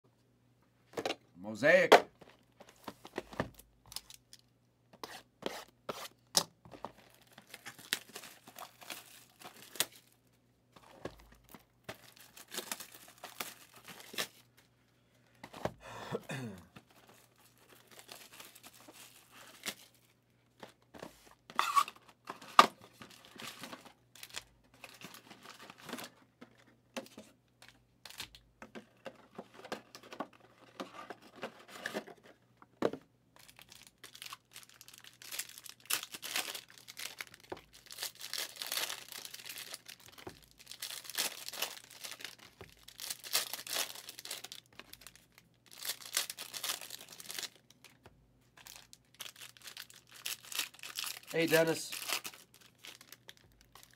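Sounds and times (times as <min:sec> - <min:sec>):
shrink wrap tearing and crinkling: 0:06.9 - 0:10.2, 0:11.2 - 0:14.5, 0:17.0 - 0:20.2, 0:21.5 - 0:26.2, 0:33.4 - 0:48.0, 0:48.6 - 0:53.9.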